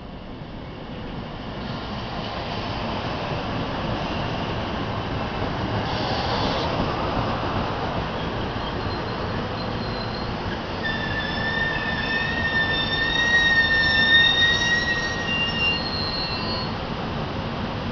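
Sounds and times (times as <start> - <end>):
train wheels rumbling on rail: 0.0 - 17.9
high brake squeal: 5.9 - 6.7, 8.2 - 16.8.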